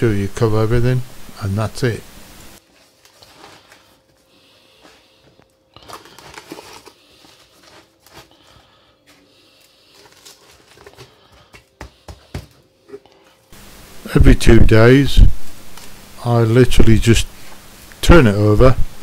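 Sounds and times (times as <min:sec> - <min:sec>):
hand rustling salt: 0:02.6 - 0:12.1.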